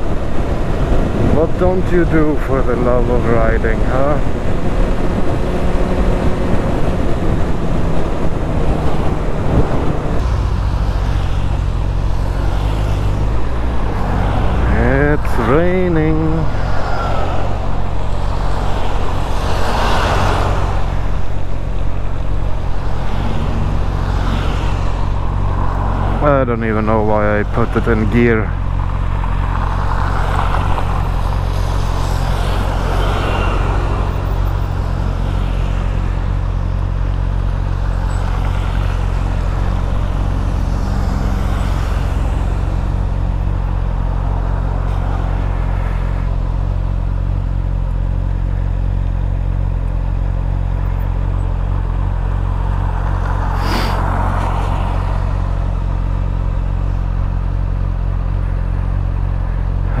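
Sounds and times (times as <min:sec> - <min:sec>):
traffic hissing on wet road: 0:00.0 - 0:21.6, 0:22.4 - 0:36.5, 0:37.2 - 0:46.2, 0:51.7 - 0:57.4.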